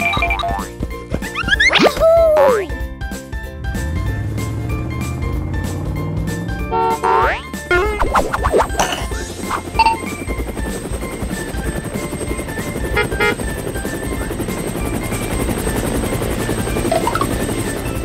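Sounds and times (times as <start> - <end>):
light background music: 0.0 - 18.0
helicopter rotor chopping: 5.4 - 18.0.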